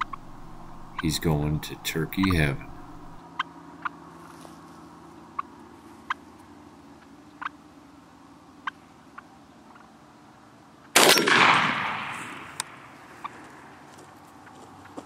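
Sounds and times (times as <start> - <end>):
turkey clucking: 0.0 - 3.9
shotgun blast: 11.0 - 12.7.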